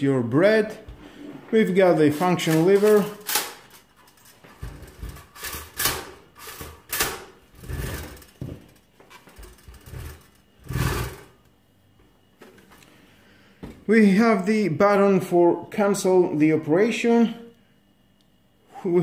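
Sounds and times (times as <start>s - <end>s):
longer rubbing noise: 7.5s - 8.5s, 9.1s - 11.4s.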